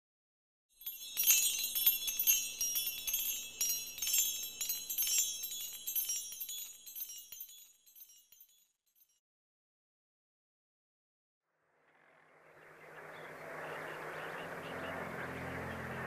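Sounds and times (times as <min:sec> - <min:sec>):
tinkling chimes: 0:00.8 - 0:09.2.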